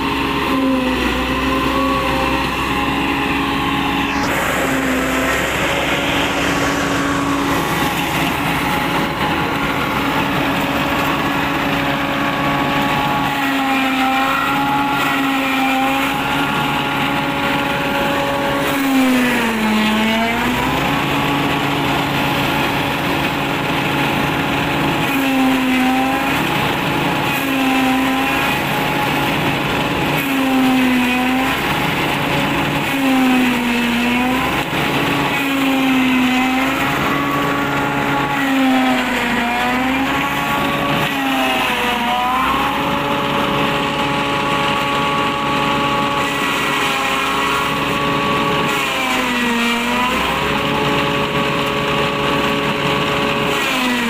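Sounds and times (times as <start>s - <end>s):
tractor engine running: 0.0s - 54.0s
silage chopper bogging under load: 0.1s - 13.6s.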